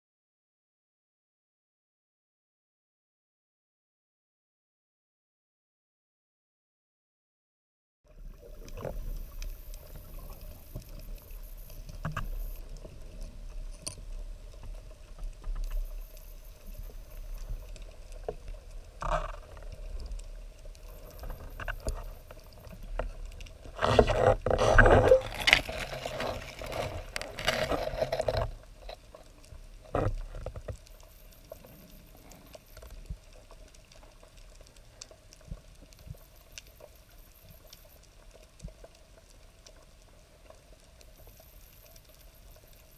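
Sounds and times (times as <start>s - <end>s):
faint steady tone: 8.1s - 23.7s, 30.7s - 42.9s
underwater crackles and clicks: 8.1s - 42.9s.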